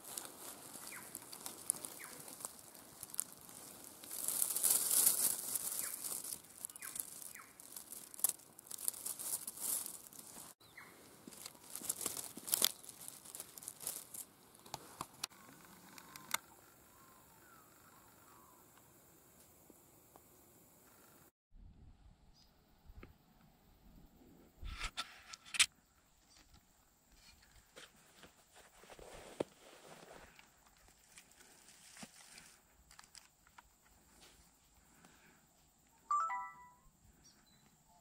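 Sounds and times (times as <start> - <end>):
footsteps crunching through dry leaves: 0.0 - 14.3
short high chirps: 36.1 - 36.9.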